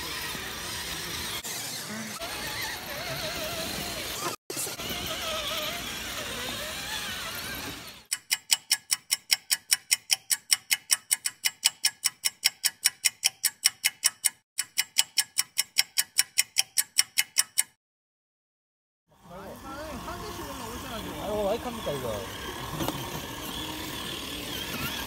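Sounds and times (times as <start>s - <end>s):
electric motors whining: 0.0s - 8.1s, 19.1s - 25.0s
clock-like ticking: 8.1s - 17.8s.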